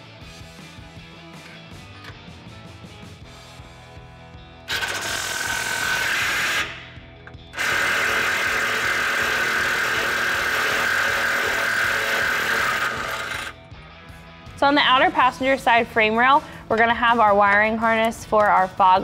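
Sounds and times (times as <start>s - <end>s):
cordless impact wrench running: 4.7s - 6.9s, 7.5s - 13.6s.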